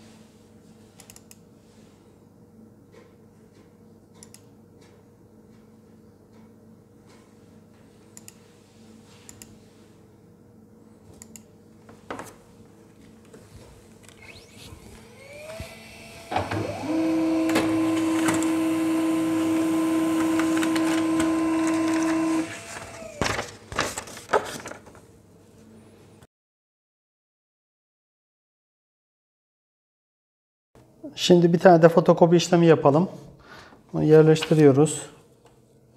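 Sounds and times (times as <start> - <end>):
laser printer motors humming: 14.0 - 23.3
paper rustling: 20.2 - 25.0.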